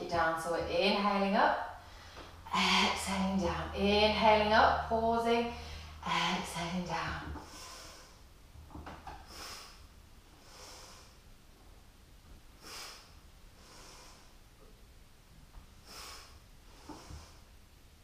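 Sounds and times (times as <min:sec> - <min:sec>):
woman breathing: 0:01.7 - 0:03.1, 0:05.4 - 0:08.3, 0:09.1 - 0:11.3, 0:12.6 - 0:14.5, 0:15.8 - 0:17.6.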